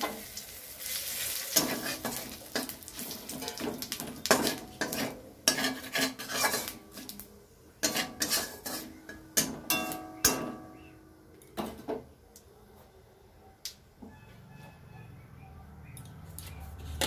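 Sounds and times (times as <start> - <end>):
metal spatula scraping a wok: 0.0 - 7.2, 7.8 - 10.8
oil sizzling: 0.0 - 10.9.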